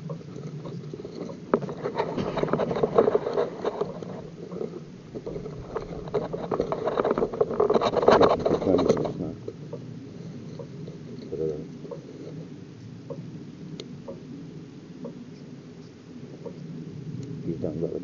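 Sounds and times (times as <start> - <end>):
irregular clicks and crackles: 0.0 - 12.5.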